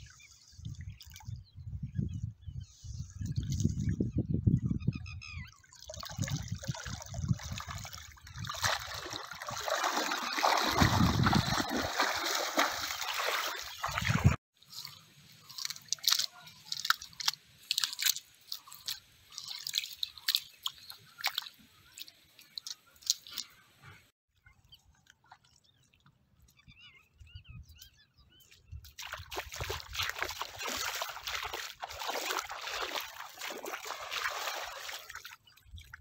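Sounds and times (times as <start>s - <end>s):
water sloshing and splashing: 5.5s - 24.1s, 28.8s - 36.0s
wet cast net clicks and rustles: 14.8s - 23.5s, 29.0s - 35.3s.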